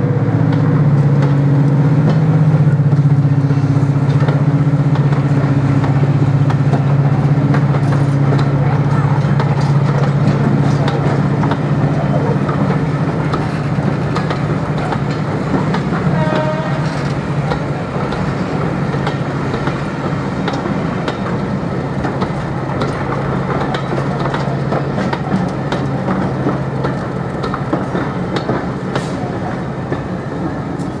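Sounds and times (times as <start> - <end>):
low diesel drone: 0.0 - 17.9
train wheels clicking over rail joints: 0.1 - 31.0.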